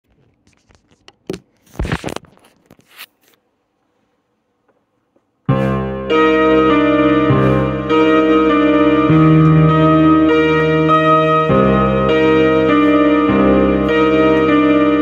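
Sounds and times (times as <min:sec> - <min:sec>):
electric keyboard chords: 0:05.5 - 0:15.0.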